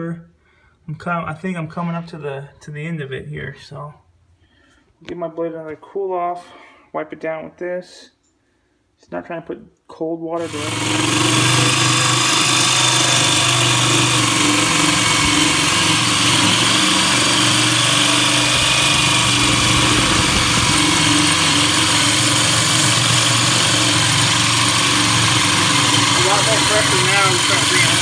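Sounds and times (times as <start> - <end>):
power drill cutting into granite: 10.4 - 28.0.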